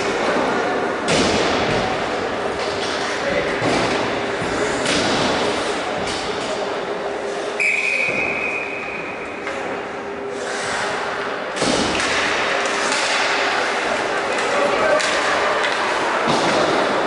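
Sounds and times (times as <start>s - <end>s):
skates and sticks on ice: 11.6s - 17.0s.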